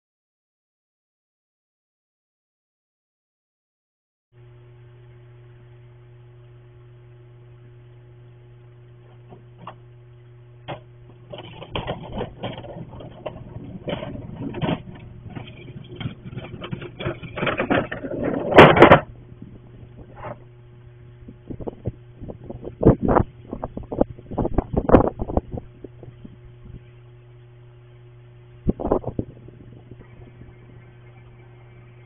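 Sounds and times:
steady low hum: 0:04.4 - 0:32.0
bins clattering: 0:10.7 - 0:19.1
garbage bins rattling and scraping: 0:10.7 - 0:19.1.

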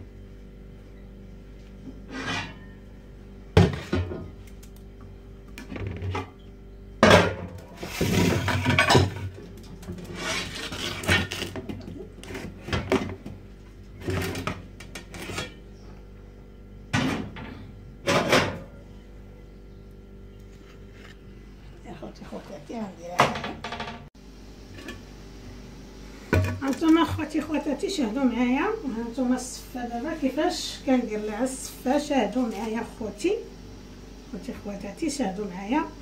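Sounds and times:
metal pots and lids clanking: 0:02.0 - 0:02.8, 0:07.0 - 0:10.1, 0:26.3 - 0:27.1.

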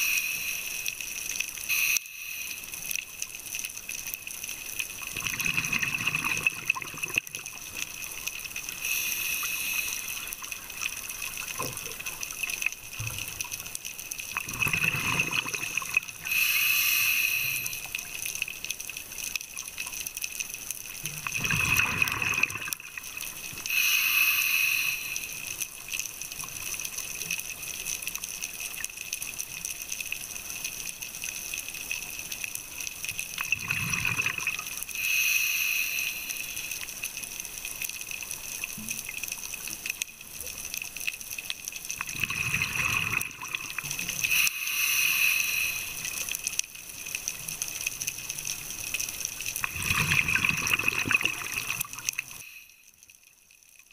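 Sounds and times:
regulator hiss: 0:00.0 - 0:03.1, 0:08.6 - 0:11.6, 0:16.2 - 0:18.0, 0:23.7 - 0:25.6, 0:34.9 - 0:36.9, 0:44.2 - 0:46.4
steady underwater hiss: 0:00.0 - 0:53.2
diver exhaling bubbles: 0:05.1 - 0:07.2, 0:14.4 - 0:16.0, 0:21.3 - 0:22.8, 0:42.1 - 0:43.8, 0:49.6 - 0:52.0.

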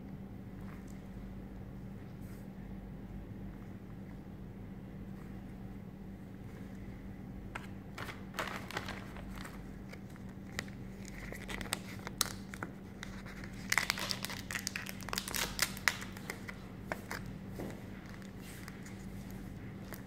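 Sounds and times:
plastic packaging crinkling: 0:07.6 - 0:17.3.

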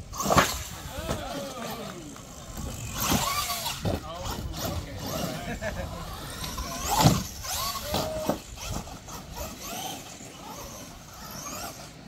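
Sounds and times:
toy truck motor whining: 0:00.0 - 0:12.0.

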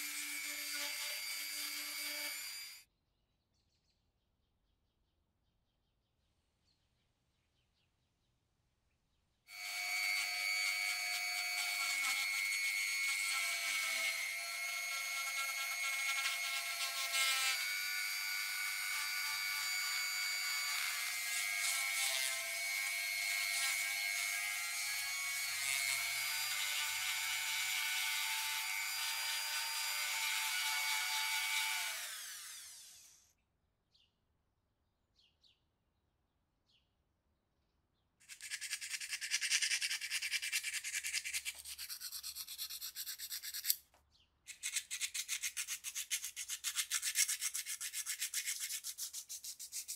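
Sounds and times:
rotary tool sanding metal: 0:00.0 - 0:02.8, 0:09.5 - 0:33.1, 0:38.2 - 0:43.8, 0:44.5 - 0:49.9.

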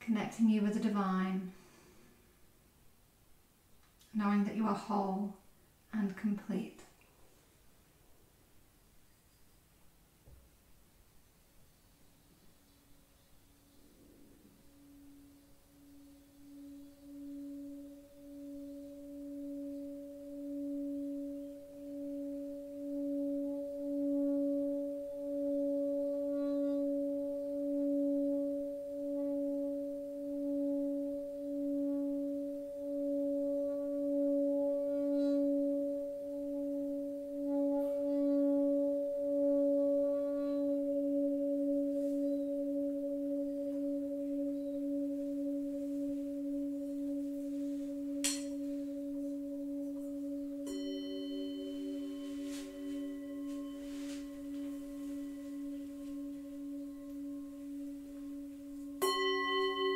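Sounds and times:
low singing bowl humming: 0:00.0 - 0:06.4, 0:09.0 - 0:59.9
higher singing bowl ringing: 0:13.7 - 0:59.9
bright strike: 0:14.8 - 0:59.9.

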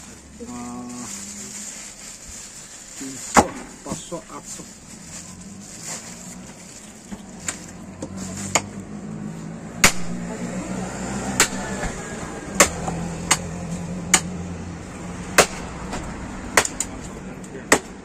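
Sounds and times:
cleaver chopping meat: 0:09.8 - 0:10.3, 0:11.3 - 0:11.9, 0:12.5 - 0:14.3, 0:15.3 - 0:15.7, 0:16.5 - 0:16.9, 0:17.7 - 0:18.0.

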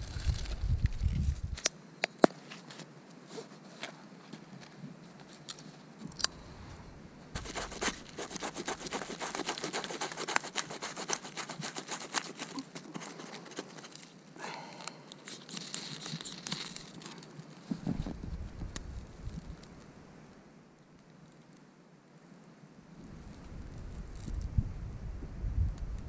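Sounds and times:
knife scraping bark: 0:07.4 - 0:14.1.

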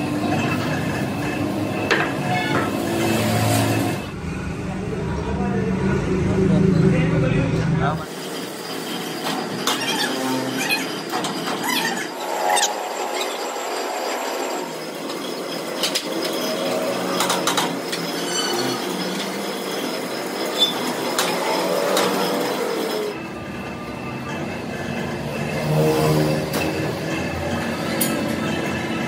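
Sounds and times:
squealing tones: 0:00.0 - 0:04.1, 0:08.6 - 0:29.0
metal clanking and scraping: 0:08.0 - 0:23.2, 0:24.0 - 0:29.0.

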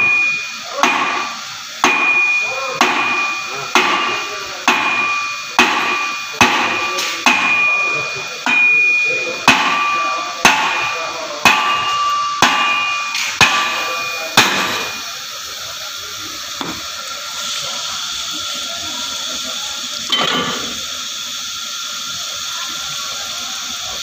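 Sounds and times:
hammer striking metal axle: 0:00.8 - 0:15.0.

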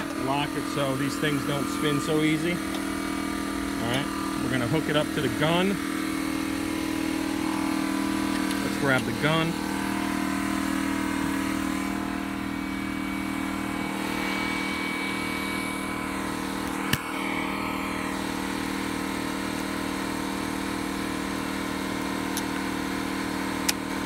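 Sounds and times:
air compressor running: 0:00.0 - 0:24.0.

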